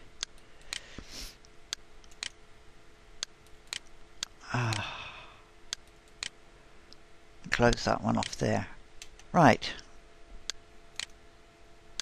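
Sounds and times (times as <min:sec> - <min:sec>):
computer mouse clicking: 0:00.2 - 0:00.9, 0:01.7 - 0:02.4, 0:03.2 - 0:04.8, 0:05.7 - 0:06.4, 0:10.5 - 0:11.2
breathy sigh: 0:04.4 - 0:05.5.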